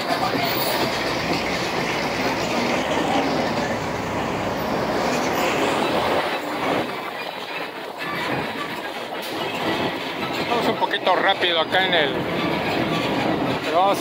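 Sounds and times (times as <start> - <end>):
tram running noise: 0.0 - 14.0.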